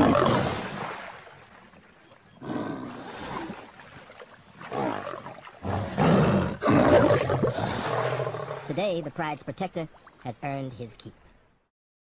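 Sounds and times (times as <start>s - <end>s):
lion snarling: 0.0s - 0.7s, 4.7s - 8.7s.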